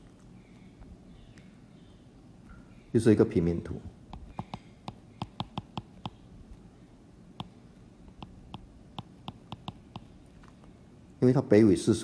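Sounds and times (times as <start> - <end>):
stylus tapping on glass screen: 4.1 - 6.2, 7.4 - 10.1.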